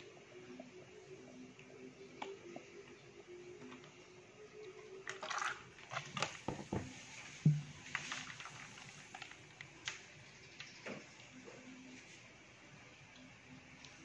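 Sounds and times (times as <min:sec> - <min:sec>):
dull thump: 0:06.5 - 0:07.7.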